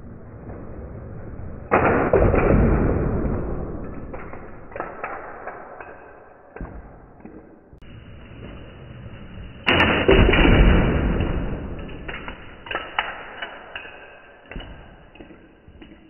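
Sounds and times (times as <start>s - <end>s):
plastic toy cars colliding: 9.7s - 13.8s.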